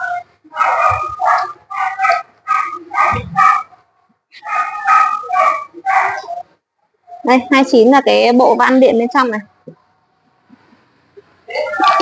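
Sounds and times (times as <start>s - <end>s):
dog barking: 0.5s - 3.8s, 4.4s - 6.4s.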